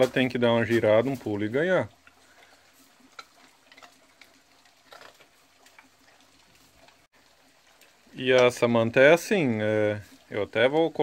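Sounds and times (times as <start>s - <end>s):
faint clicks and ticks: 1.9s - 8.7s.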